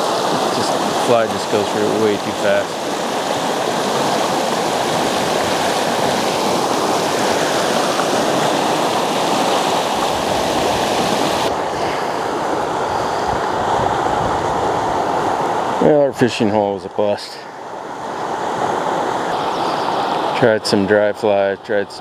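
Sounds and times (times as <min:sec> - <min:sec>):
creek rushing over rocks: 0:00.0 - 0:22.0.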